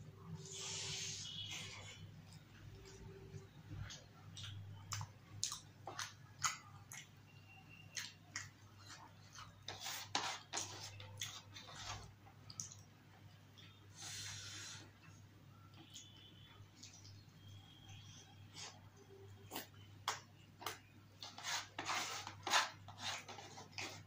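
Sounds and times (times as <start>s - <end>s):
wet chewing and mouth smacks: 2.2s - 9.6s, 12.4s - 12.9s.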